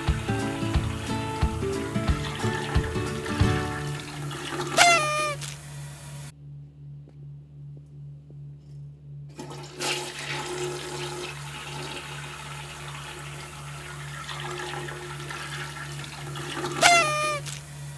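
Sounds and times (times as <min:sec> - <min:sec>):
toilet flushing: 0:00.0 - 0:05.0, 0:09.4 - 0:17.5
low pulsing hum: 0:03.8 - 0:09.8.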